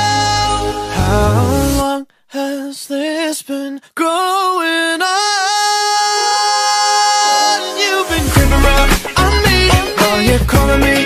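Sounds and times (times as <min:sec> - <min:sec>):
person singing with vibrato: 0:00.0 - 0:11.0
pop song backing: 0:00.0 - 0:11.0.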